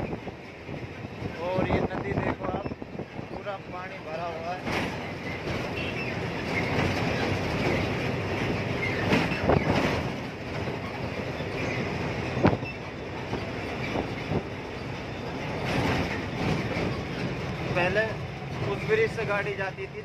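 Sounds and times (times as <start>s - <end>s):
truck cab road and engine noise: 0.0s - 20.0s
sharp knocks and rattles: 4.2s - 19.4s.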